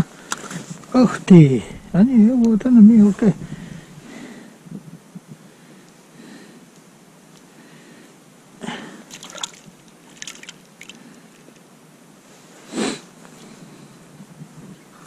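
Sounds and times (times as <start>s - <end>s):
water sloshing and dripping: 9.1s - 11.6s.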